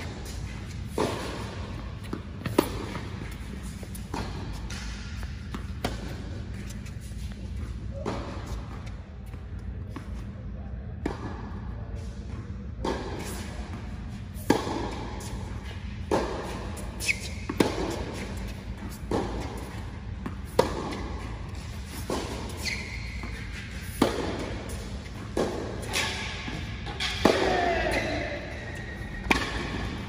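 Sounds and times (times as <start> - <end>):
racquet striking tennis ball: 0.0 - 6.7, 12.8 - 30.0
tennis ball bouncing: 0.0 - 10.3, 11.0 - 30.0
sneakers squeaking on court: 15.2 - 30.0.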